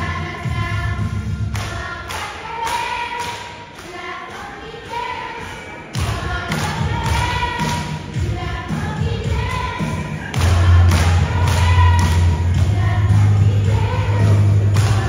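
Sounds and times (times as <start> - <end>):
children's choir singing: 0.0 - 15.0
steady thumping beat: 6.0 - 15.0.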